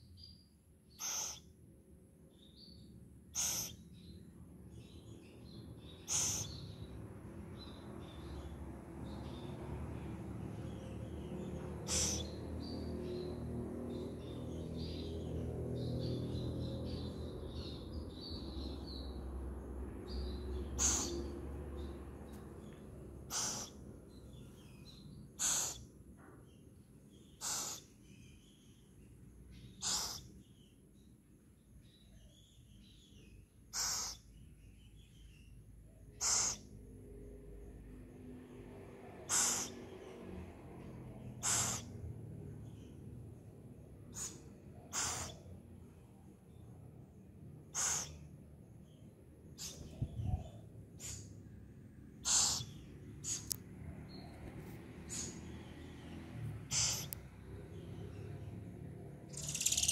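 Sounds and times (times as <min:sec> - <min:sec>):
owl chicks hissing: 0:01.0 - 0:01.5, 0:03.3 - 0:03.8, 0:06.0 - 0:06.7, 0:11.8 - 0:12.4, 0:20.8 - 0:21.3, 0:23.3 - 0:23.8, 0:25.4 - 0:25.9, 0:27.4 - 0:27.9, 0:29.8 - 0:30.3, 0:33.7 - 0:34.3, 0:36.2 - 0:36.7, 0:39.3 - 0:39.8, 0:41.4 - 0:42.0, 0:44.1 - 0:45.4, 0:47.7 - 0:48.3, 0:49.6 - 0:49.9, 0:51.0 - 0:51.4, 0:52.2 - 0:53.6, 0:55.1 - 0:55.5, 0:56.7 - 0:57.2.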